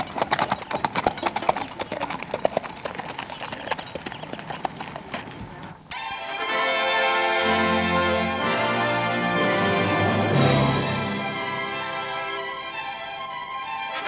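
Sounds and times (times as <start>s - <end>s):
horse hooves clip-clopping: 0.0s - 5.9s.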